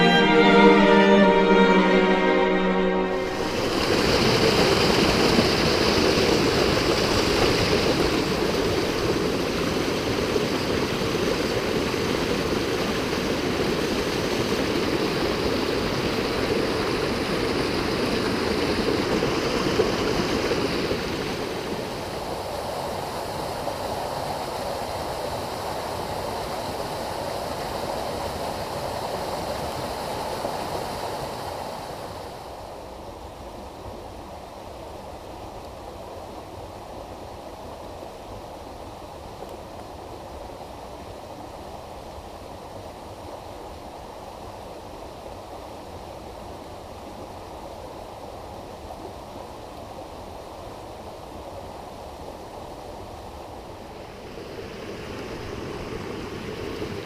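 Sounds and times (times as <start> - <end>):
stream rushing over rocks: 3.4 - 33.3.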